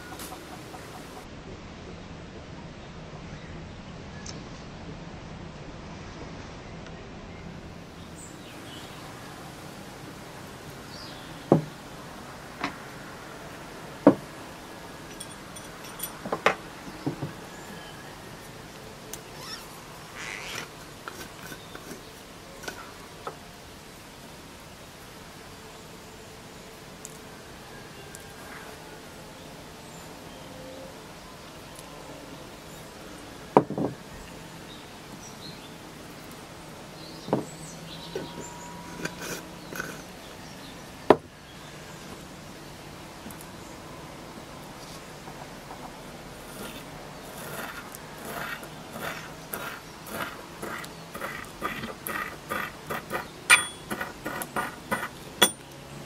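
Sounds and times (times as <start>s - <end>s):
faint outdoor background: 0.0s - 56.0s
birdsong chirps: 6.5s - 9.7s, 10.6s - 12.8s, 28.0s - 56.0s
glass jar and metal lid clinking: 15.1s - 16.5s, 53.5s - 55.7s
sharp knocks: 33.6s - 34.0s.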